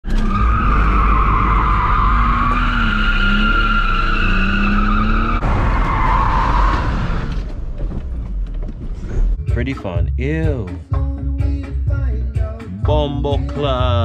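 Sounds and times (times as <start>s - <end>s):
tire squeal: 0.0s - 7.6s.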